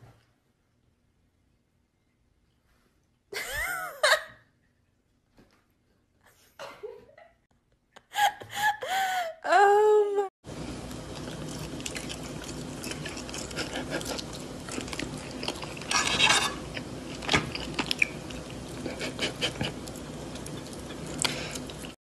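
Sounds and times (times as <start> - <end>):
room hum: 0.0 - 22.0
cat crunching food: 10.6 - 22.0.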